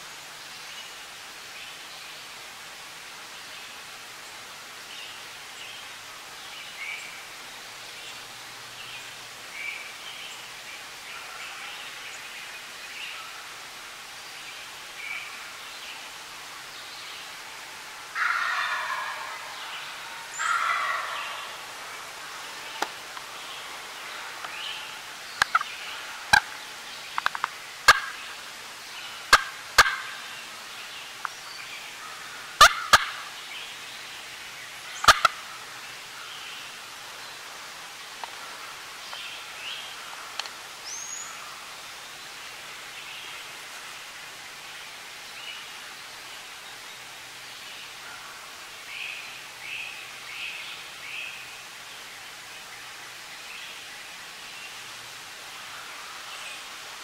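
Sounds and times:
turkey gobbling: 18.2 - 22.9, 24.8 - 26.6, 27.9 - 28.2, 29.3 - 30.2, 32.6 - 33.3, 35.0 - 35.4.

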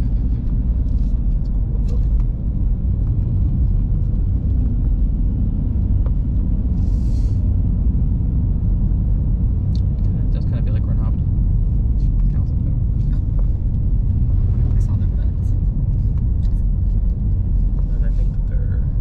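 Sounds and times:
car cabin road and engine rumble: 0.0 - 19.0.

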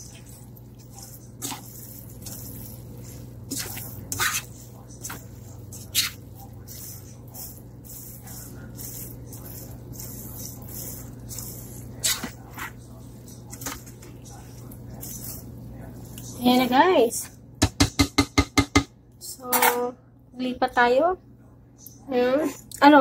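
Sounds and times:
utensil scraping in a pot: 0.0 - 17.4
steady low hum: 0.0 - 23.0.

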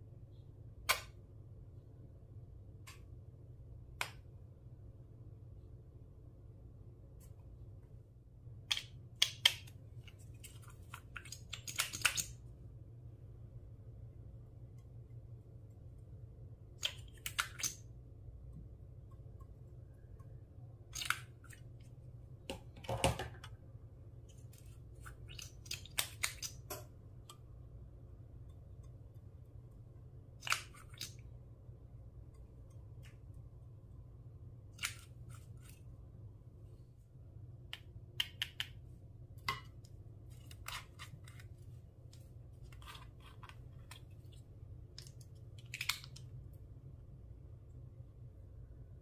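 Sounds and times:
steady low hum: 12.4 - 25.9, 26.6 - 45.6.

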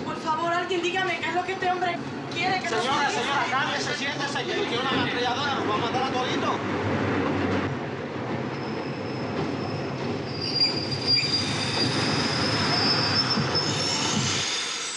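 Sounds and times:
subway wheels rumbling on track: 0.0 - 14.9
metallic wheel squeal: 8.5 - 14.9.

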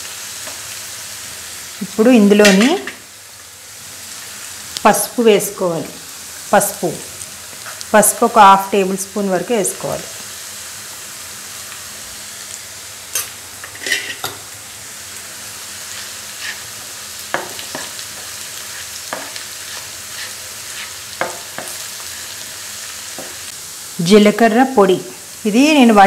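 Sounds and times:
onions sizzling in hot oil: 0.0 - 26.0
spatula scraping and tapping pan: 13.2 - 14.4, 17.3 - 21.9.

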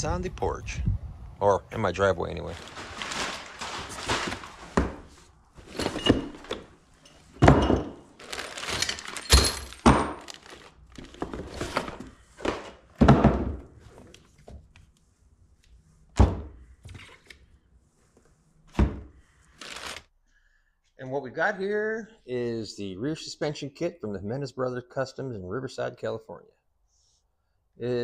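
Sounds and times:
rustling cardboard and plastic bags: 2.2 - 13.0, 19.5 - 20.1
thunks against cardboard: 11.8 - 13.7, 18.7 - 19.1.

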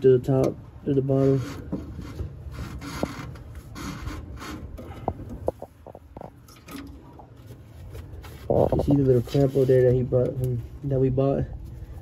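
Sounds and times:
rubber hose scraping metal frame: 1.0 - 5.8, 7.4 - 10.3.

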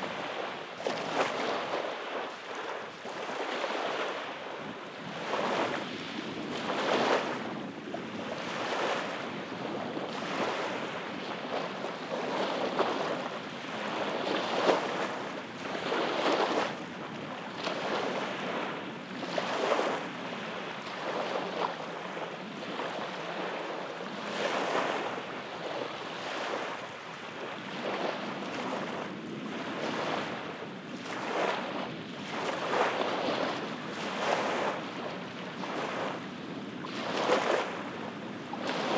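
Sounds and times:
small waves breaking on sand: 0.0 - 38.9.

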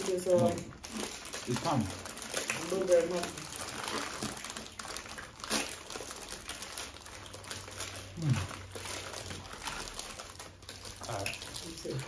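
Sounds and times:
plastic wrapper crinkling: 0.0 - 12.0
person humming mm: 8.2 - 8.5.

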